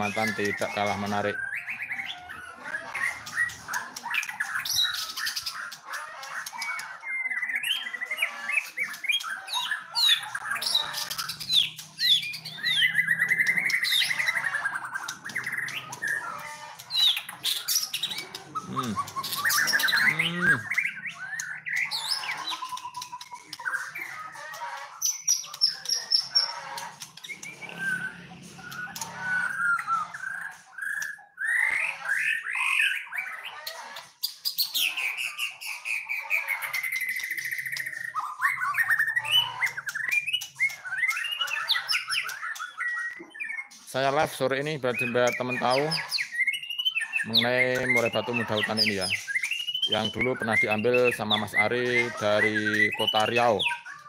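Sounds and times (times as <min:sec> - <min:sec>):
bird singing whistled phrases: 0:44.9 - 0:54.0.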